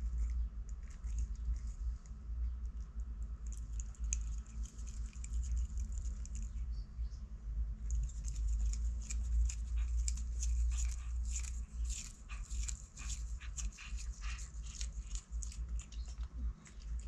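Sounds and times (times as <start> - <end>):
cat chewing leaves: 0.0 - 6.7, 7.7 - 17.0.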